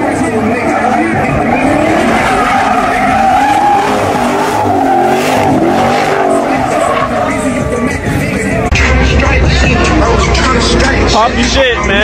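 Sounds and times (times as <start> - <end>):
tires squealing: 0.0 - 8.7.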